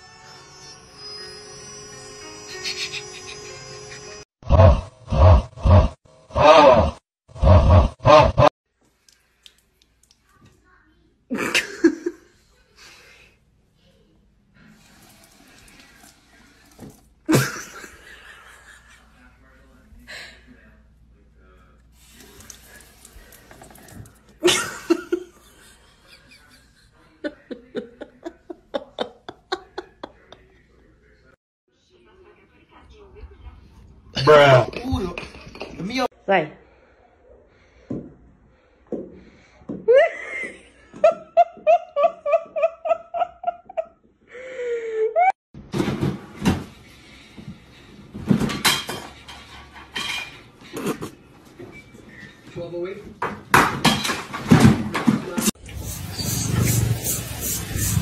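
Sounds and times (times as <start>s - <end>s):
person laughing: 2.5s - 4.2s, 17.3s - 19.0s, 24.4s - 30.5s.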